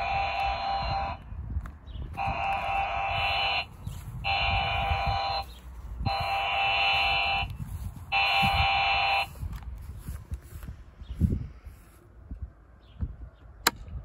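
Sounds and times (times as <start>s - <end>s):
long electronic beeps: 0.0s - 1.2s, 2.2s - 9.4s.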